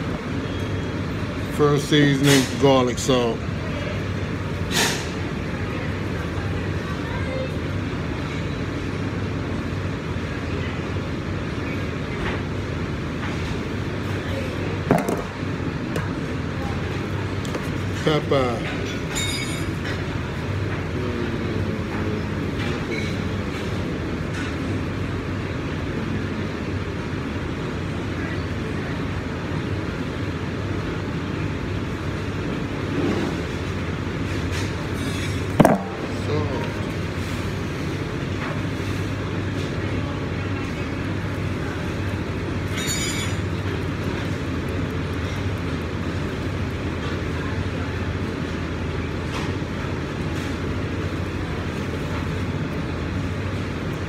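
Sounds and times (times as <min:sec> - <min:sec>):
kitchen hum and noise: 0:00.0 - 0:54.0
bright clink: 0:19.1 - 0:19.8.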